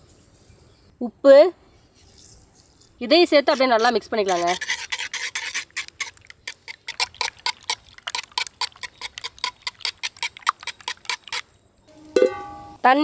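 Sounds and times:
whisk clicking against clay pot: 3.5s - 11.5s.

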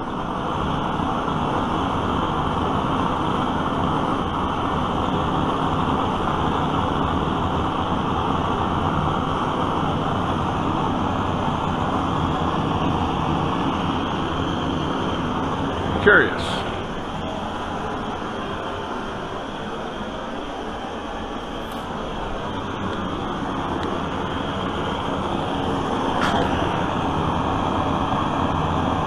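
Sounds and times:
blowtorch flame hissing: 0.0s - 29.0s.

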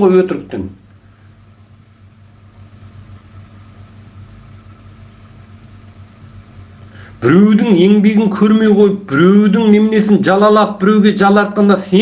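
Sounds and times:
low hum with faint hiss: 0.0s - 12.0s.

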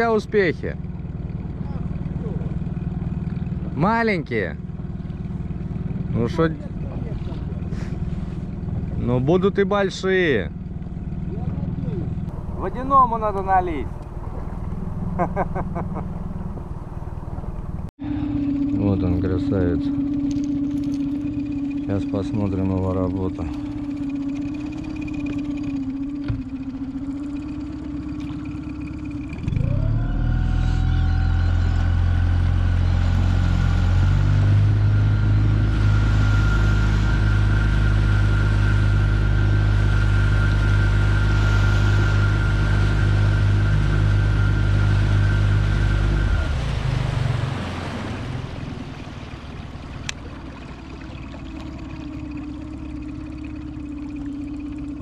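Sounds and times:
outboard motor running: 0.0s - 55.0s.

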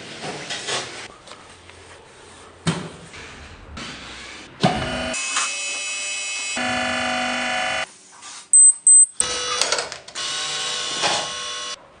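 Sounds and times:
loud high beeps: 8.6s - 9.2s.

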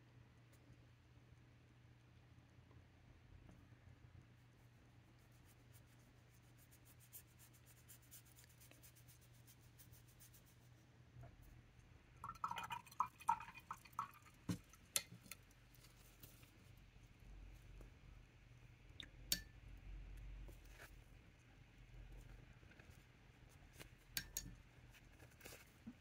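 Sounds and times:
paintbrush scratching on paper: 4.6s - 10.9s.

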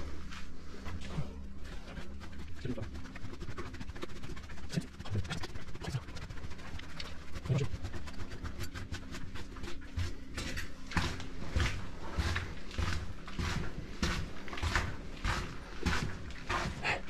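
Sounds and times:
footsteps crunching on gritty floor: 8.6s - 17.0s.

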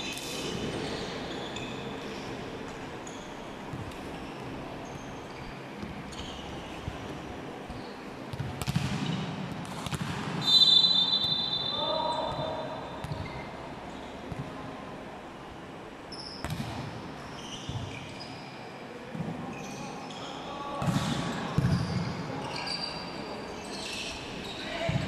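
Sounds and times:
shoe squeaks: 3.0s - 7.0s, 16.1s - 16.6s, 17.3s - 18.6s, 19.5s - 20.5s, 21.7s - 24.8s
volleyball bouncing on floor: 8.3s - 10.4s
referee's whistle: 10.4s - 12.7s.

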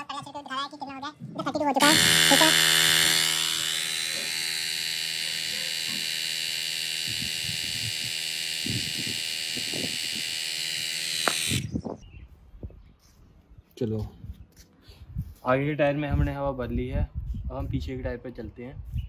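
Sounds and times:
air compressor motor whine: 1.8s - 12.0s.

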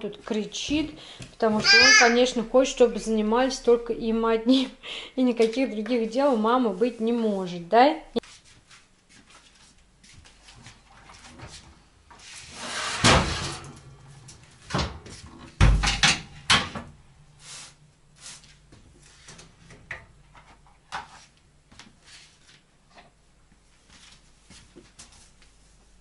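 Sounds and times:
metal tray scraping: 12.4s - 13.7s
oven door opening and shutting: 12.6s - 13.9s.

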